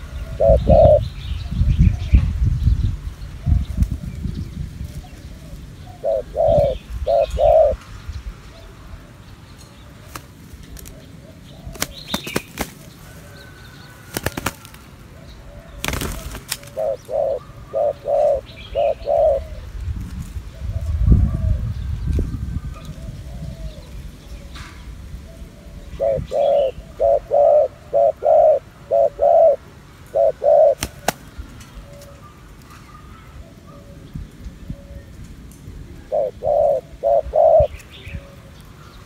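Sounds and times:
doves cooing: 0.0 - 2.3, 4.8 - 7.8, 9.8 - 19.8, 22.6 - 35.2, 35.8 - 39.0
wing flapping: 11.7 - 13.0, 14.0 - 14.9, 15.8 - 16.9, 30.6 - 31.4.

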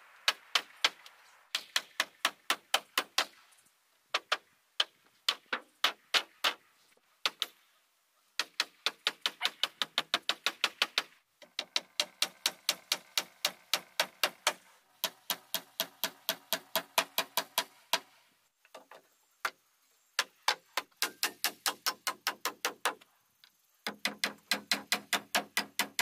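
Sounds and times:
hammer driving nails into wood: 8.4 - 18.1, 23.9 - 26.0.

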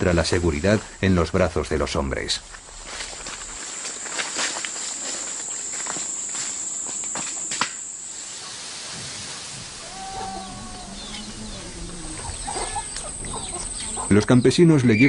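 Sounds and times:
high-pitched insect drone: 3.6 - 8.4, 9.8 - 15.0
short pitched calls: 9.8 - 14.2.

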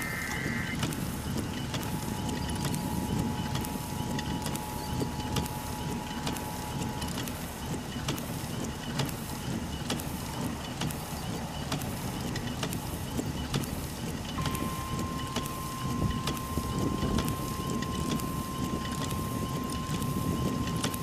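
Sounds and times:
two-tone emergency alert signal: 0.0 - 0.8, 14.4 - 21.0
raindrops ticking on vehicle: 0.4 - 21.0.

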